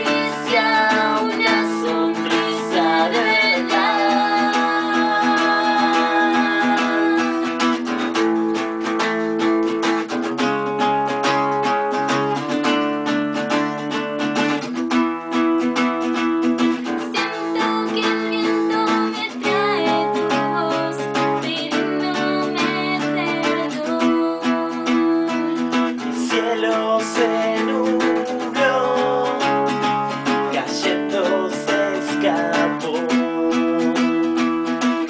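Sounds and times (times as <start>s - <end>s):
person singing: 0.0s - 9.0s, 16.7s - 35.0s
acoustic guitar strumming: 0.0s - 35.0s.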